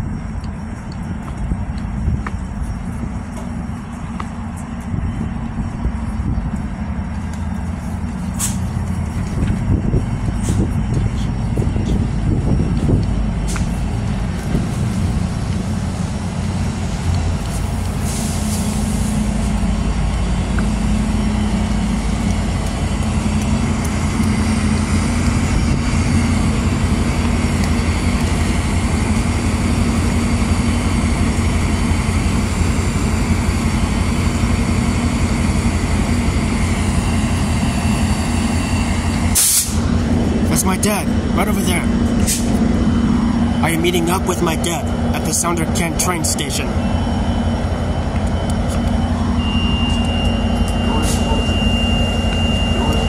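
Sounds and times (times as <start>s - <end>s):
diesel locomotive engine drone: 0.0s - 53.0s
air brakes hissing: 8.2s - 8.8s, 10.4s - 10.7s, 17.5s - 19.6s, 37.2s - 39.8s, 42.2s - 42.7s, 49.3s - 53.0s.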